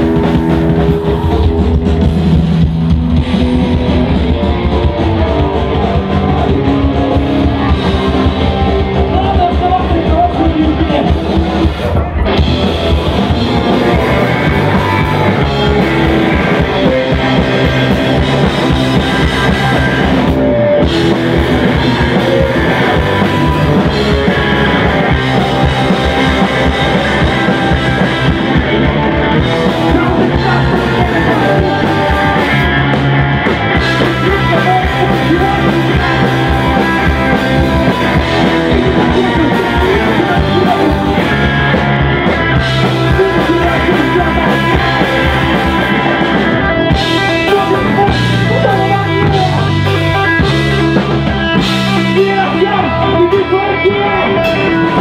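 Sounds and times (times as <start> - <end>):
bass guitar: 0.0 - 55.0
drum kit: 0.0 - 55.0
electric guitar: 0.0 - 55.0
person singing: 13.2 - 55.0.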